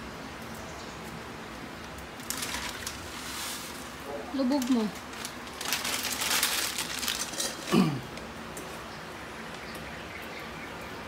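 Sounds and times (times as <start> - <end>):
plastic packet crinkling: 2.2 - 8.3.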